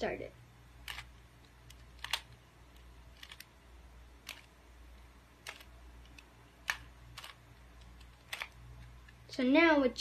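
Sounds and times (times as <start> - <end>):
puzzle cube layers clicking: 0.8 - 3.6, 4.2 - 9.2.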